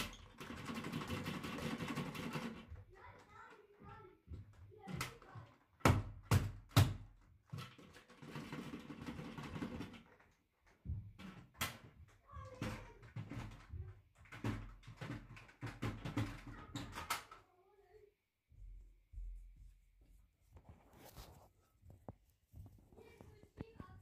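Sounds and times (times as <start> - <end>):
footsteps on rug: 18.4 - 24.0
rustling: 19.2 - 24.0.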